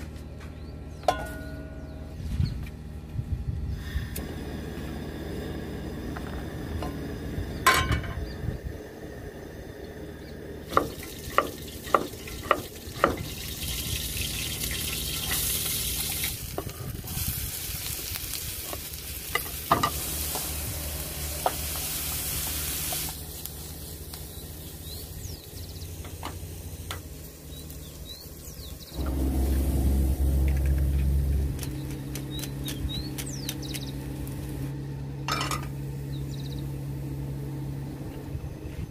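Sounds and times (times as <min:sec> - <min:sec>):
low rumble: 0:00.6 - 0:10.7, 0:27.5 - 0:38.9
vegetables sizzling in frying pan: 0:10.7 - 0:27.8.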